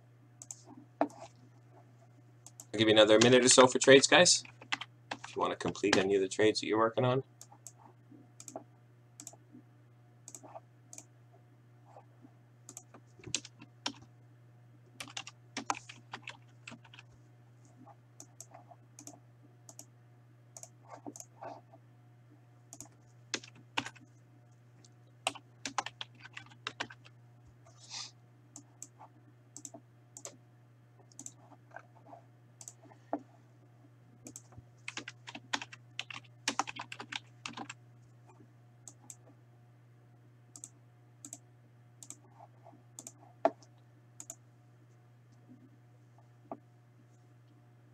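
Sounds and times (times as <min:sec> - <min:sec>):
steady low hum: 0:00.0 - 0:47.9
computer keyboard typing: 0:04.4 - 0:06.1, 0:08.4 - 0:08.6, 0:12.7 - 0:14.1, 0:15.0 - 0:17.1, 0:20.6 - 0:21.6, 0:22.7 - 0:24.1, 0:25.2 - 0:27.1, 0:29.6 - 0:30.4, 0:34.2 - 0:37.8.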